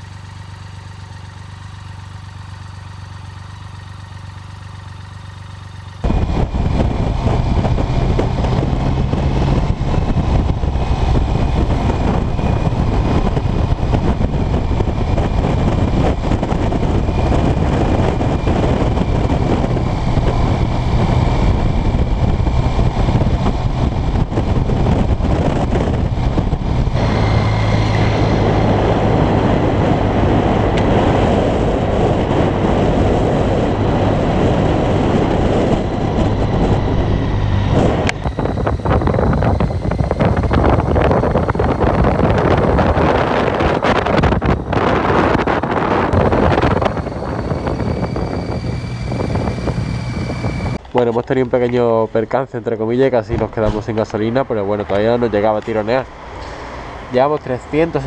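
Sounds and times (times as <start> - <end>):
motorcycle engine idling: 0.0 - 7.3, 38.2 - 50.8
wind rush on microphone: 6.0 - 58.0
motorcycle engine pulling: 36.1 - 51.5.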